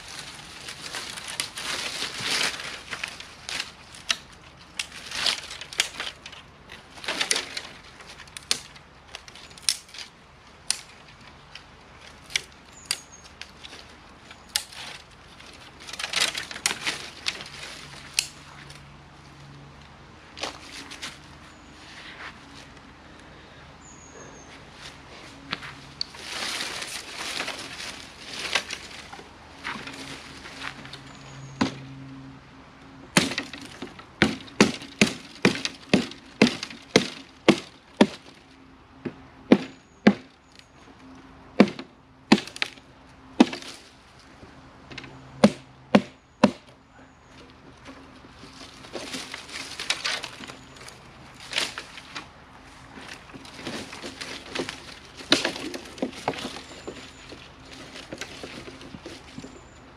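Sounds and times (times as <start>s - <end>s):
rustling handling noise: 0.0s - 22.9s, 24.4s - 31.5s, 47.2s - 59.9s
wood chopping strikes: 33.2s - 38.4s, 39.0s - 40.3s, 41.6s - 42.8s, 43.4s - 43.8s, 44.9s - 46.8s, 53.6s - 57.0s.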